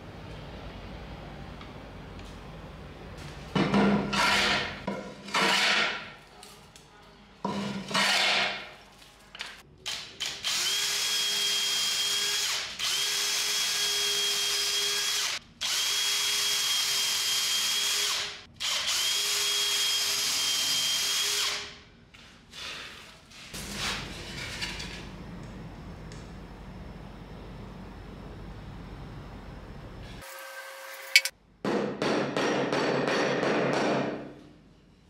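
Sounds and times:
cordless drill boring into wood: 10.4s - 21.6s.

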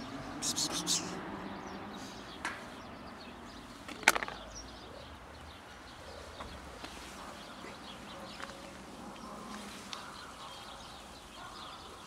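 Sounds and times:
plastic container click on concrete: 3.9s - 4.4s.

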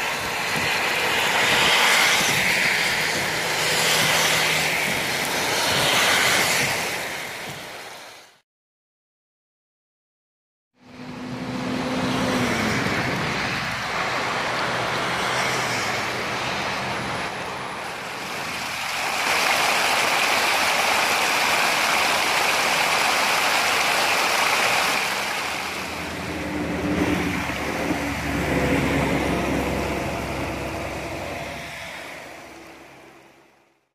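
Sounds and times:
road traffic engine hum: 0.0s - 8.0s, 10.8s - 33.8s
water rushing over rocks: 0.0s - 8.4s, 17.0s - 33.7s.

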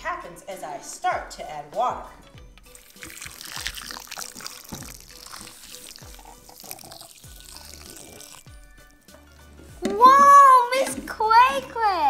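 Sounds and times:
water trickling into bowl: 2.7s - 9.0s.

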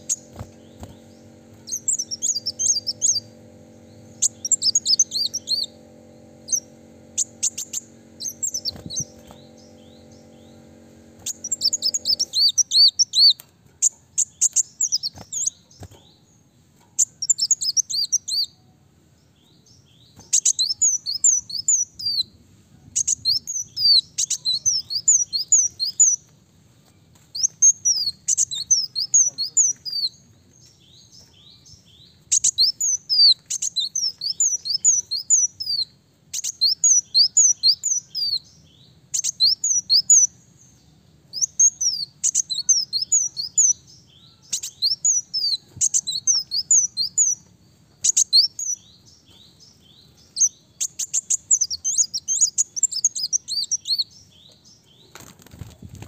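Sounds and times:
bird singing high thin notes: 0.0s - 13.4s.

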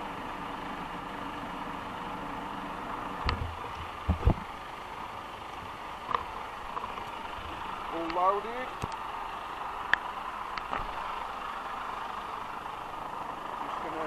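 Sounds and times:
engine idling: 0.0s - 14.0s
camera handling knocks: 3.3s - 4.4s.

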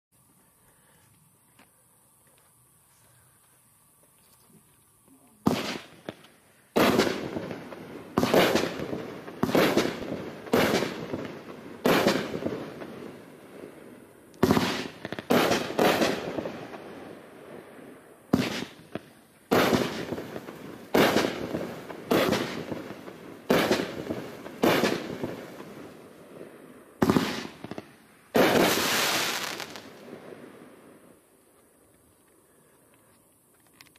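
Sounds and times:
firework bangs: 5.4s - 13.8s, 14.4s - 17.3s, 18.3s - 31.1s.

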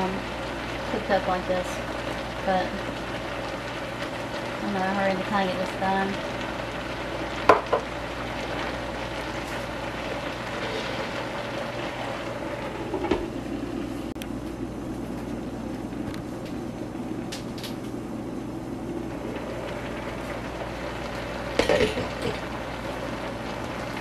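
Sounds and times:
food sizzling in a wok: 0.0s - 13.4s, 19.2s - 24.0s
utensil and lid clatter: 21.6s - 22.4s.

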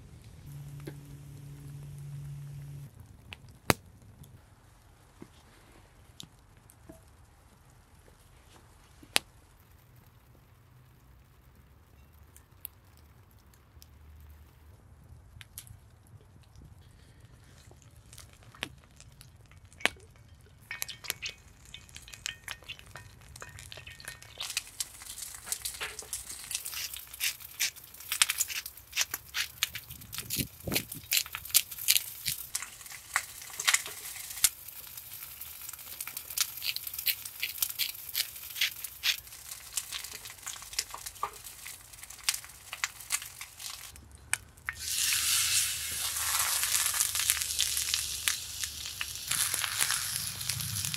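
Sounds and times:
wood fire crackling: 0.0s - 50.9s
steak sizzling in pan: 20.8s - 43.9s, 44.7s - 50.9s
hand grinder grinding pepper: 25.0s - 34.6s, 36.0s - 40.3s, 44.9s - 50.9s.

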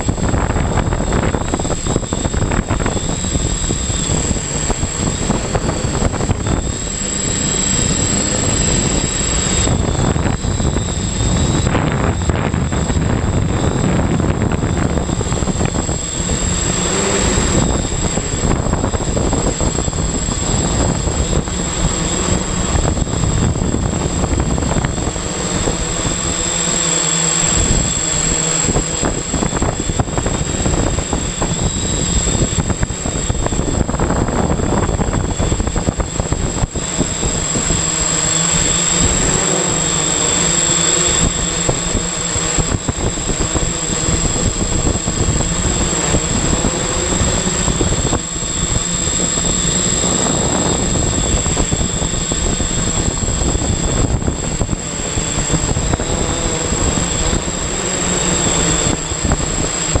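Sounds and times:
drone propellers whirring: 0.0s - 60.0s
thin high whine: 0.0s - 60.0s.

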